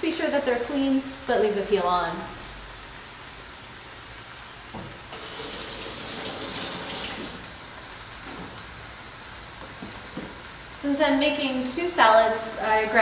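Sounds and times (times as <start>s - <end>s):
tap water running: 4.7s - 8.6s.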